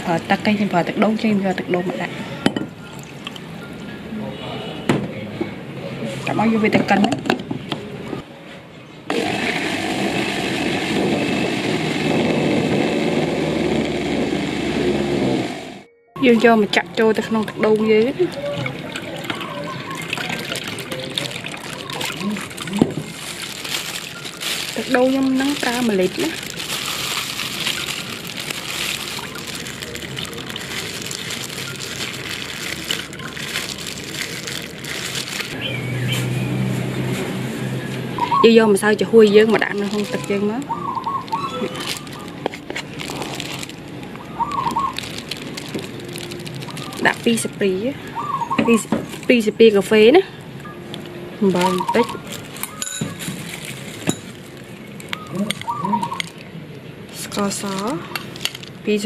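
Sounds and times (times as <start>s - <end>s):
electric blender running: 9.1s - 15.8s
juice trickling into metal pot: 17.0s - 35.6s, 41.1s - 47.5s.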